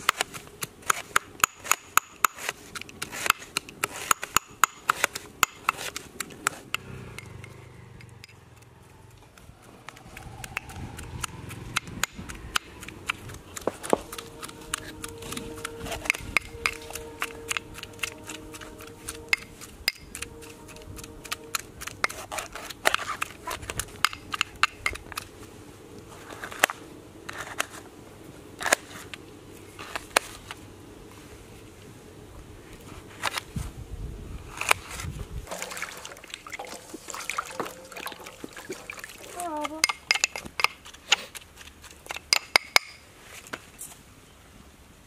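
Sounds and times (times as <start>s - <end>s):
faint steady tone: 36.1s - 40.0s.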